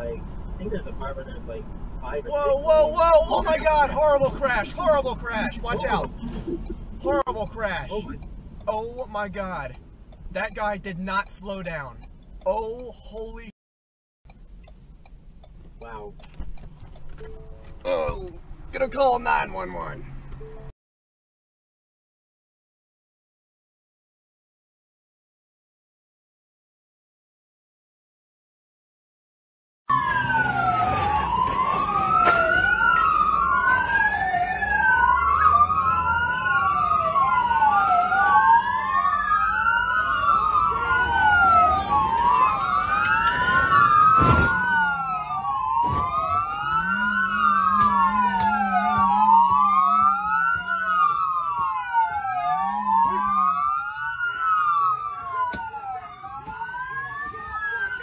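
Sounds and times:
emergency sirens wailing: 2.1s - 9.8s, 29.9s - 58.0s.

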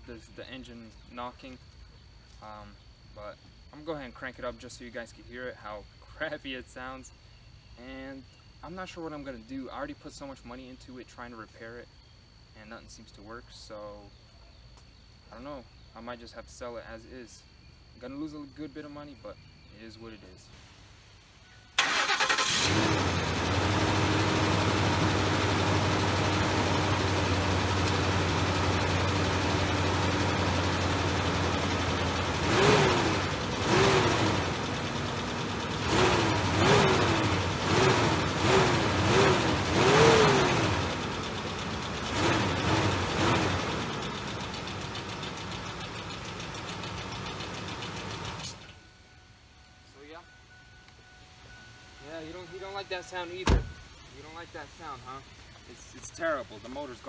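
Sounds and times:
truck engine idling and revving: 21.8s - 48.8s
engine knocking: 39.8s - 48.5s
man speaking: 52.0s - 57.0s.

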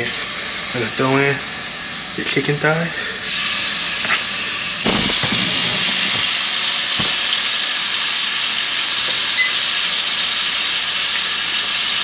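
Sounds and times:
chicken frying in hot oil: 0.0s - 12.0s
sharp knocks: 4.8s - 6.3s, 7.0s - 7.3s.

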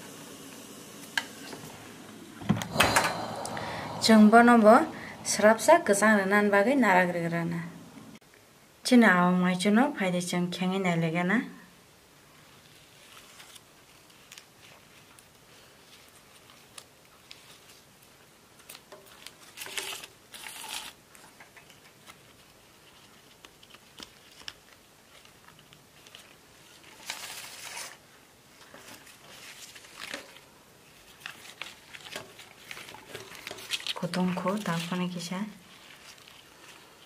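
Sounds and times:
leaves rustling and crinkling: 12.4s - 20.9s, 21.7s - 37.0s.

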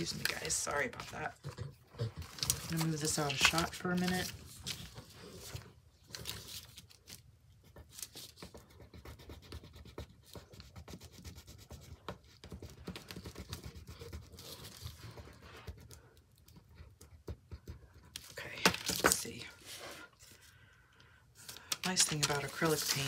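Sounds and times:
marker scratching on paper: 7.6s - 18.1s.

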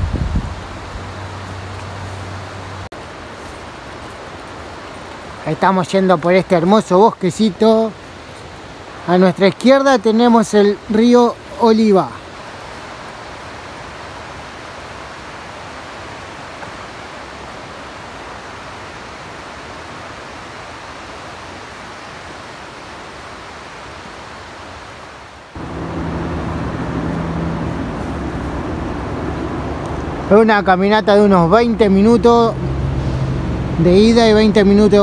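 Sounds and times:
river water rushing: 0.0s - 35.0s
steady low motor hum: 25.6s - 34.4s.

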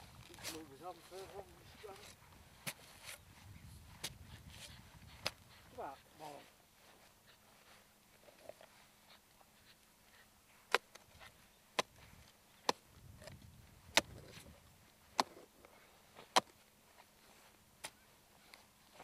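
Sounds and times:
spade chopping into turf: 16.2s - 16.6s.

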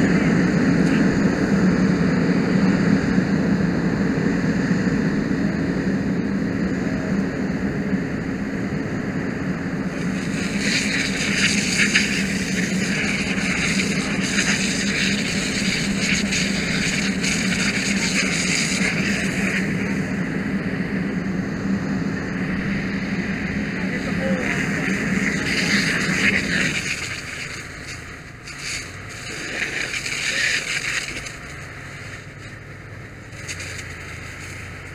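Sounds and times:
pump engine drone: 0.0s - 34.9s
dry leaves crackling: 24.9s - 34.9s.

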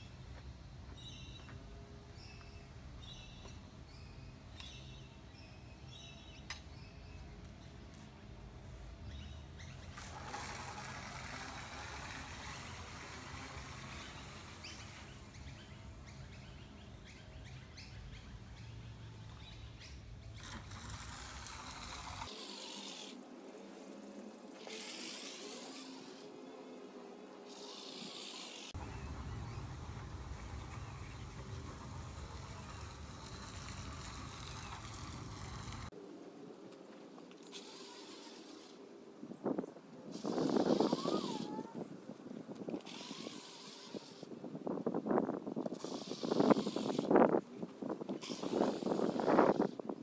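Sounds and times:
birds chirping: 9.0s - 21.0s, 25.6s - 37.6s.

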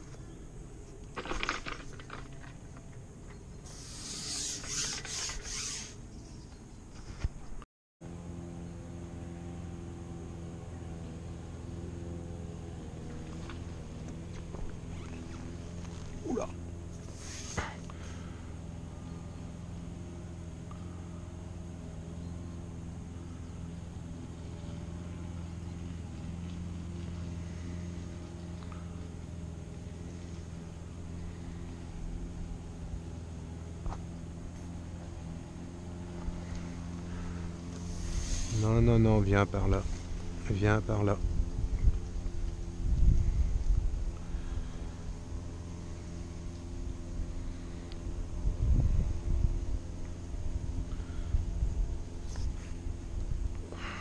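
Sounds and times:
low mechanical hum: 0.0s - 54.0s
quick clicks and rustles: 0.9s - 3.4s
hissing rasp strokes: 3.6s - 6.0s, 17.0s - 17.8s, 37.2s - 38.7s
rubbing handling noise: 3.7s - 6.0s.

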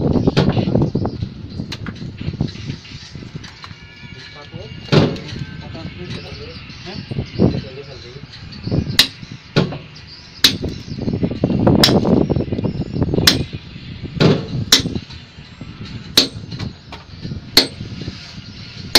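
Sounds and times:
hammer striking steel chisel: 9.0s - 9.8s, 10.4s - 10.8s, 13.2s - 13.5s, 14.3s - 15.0s, 16.2s - 16.7s, 17.6s - 17.8s.

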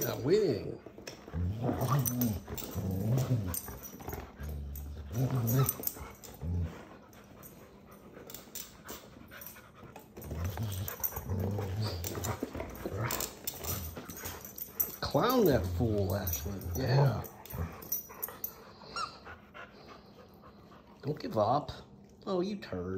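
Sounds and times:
puppies growling: 0.0s - 21.0s.

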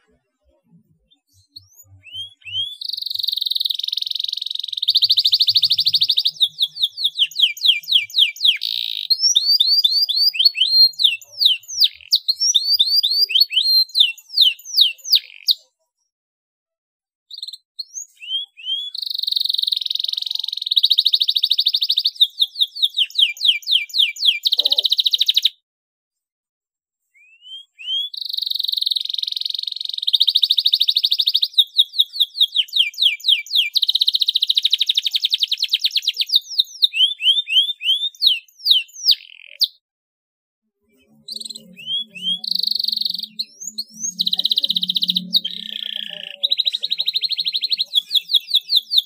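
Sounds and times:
canary singing: 0.0s - 15.9s, 17.3s - 25.6s, 27.2s - 39.8s, 40.8s - 49.0s.

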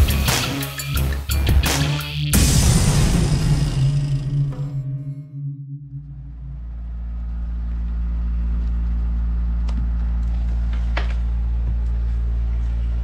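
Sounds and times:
low mechanical motor hum: 5.7s - 13.0s.

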